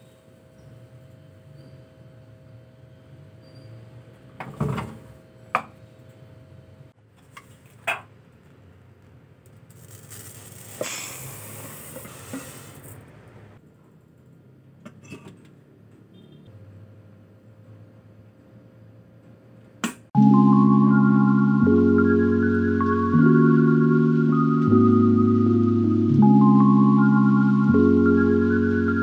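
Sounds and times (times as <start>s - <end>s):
rice pouring into metal pot: 9.7s - 12.9s.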